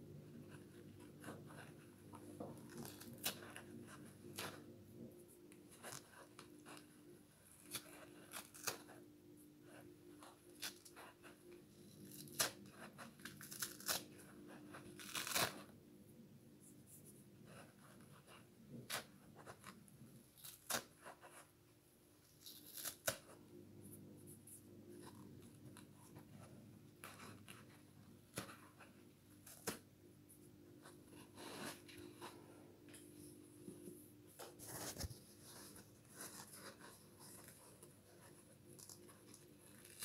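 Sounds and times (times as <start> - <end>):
scouring pad tearing off sponge: 13.3 - 14.1, 14.9 - 15.6.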